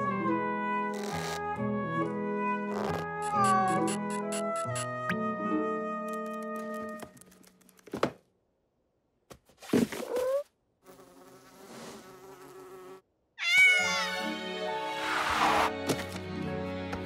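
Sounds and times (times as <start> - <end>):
squeaky cry: 2.8 - 4.2, 13.4 - 14.3.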